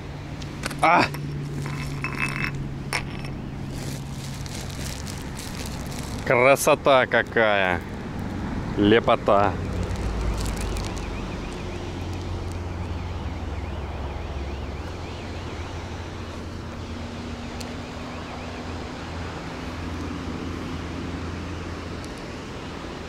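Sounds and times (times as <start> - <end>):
distant city traffic: 0.0 - 23.0
wind rumbling on microphone: 0.6 - 18.1
plastic sack crinkling: 1.4 - 6.7, 9.6 - 12.6
far-off siren warbling: 10.4 - 19.9.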